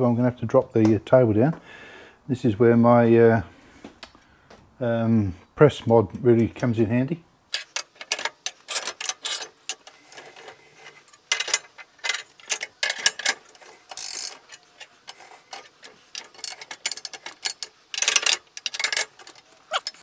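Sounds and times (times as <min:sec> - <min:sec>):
metallic clicks and clatter: 0:07.5 - 0:20.0.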